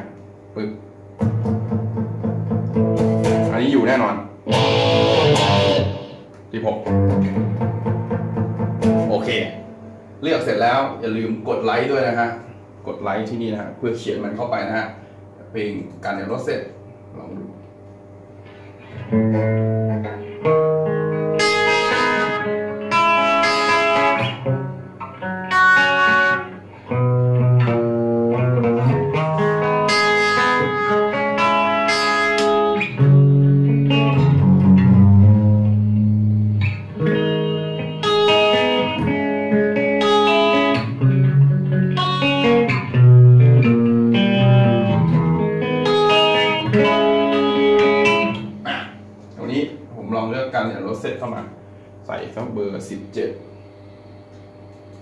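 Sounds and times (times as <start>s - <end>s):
electric guitar ringing notes: 4.4s - 10.2s, 18.9s - 49.2s.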